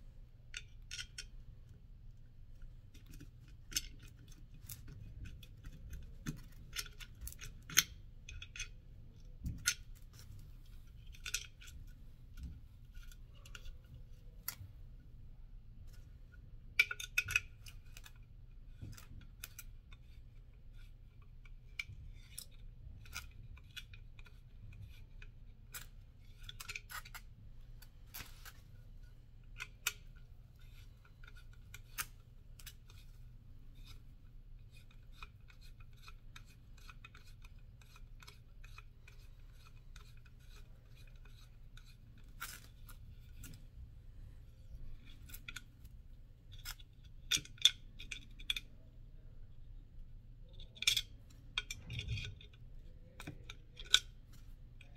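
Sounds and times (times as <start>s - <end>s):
small metal parts clicking: 3.0s - 11.8s, 21.8s - 27.3s, 29.5s - 33.2s, 34.6s - 43.6s, 50.4s - 54.9s.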